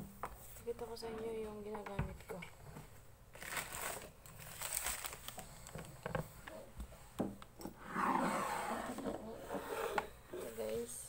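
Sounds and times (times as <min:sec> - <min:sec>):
packaging crinkling and rustling: 0:03.3 - 0:06.1.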